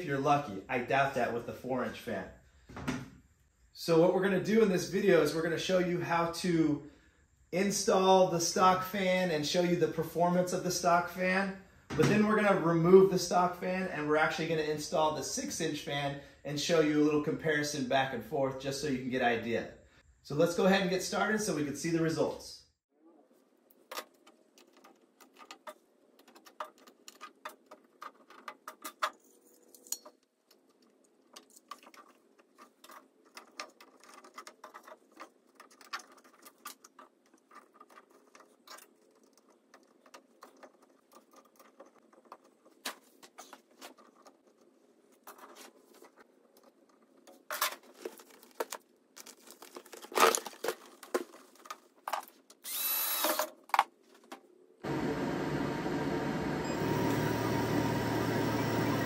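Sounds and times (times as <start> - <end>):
plastic duct clicks and rustles: 23.7 - 52.7.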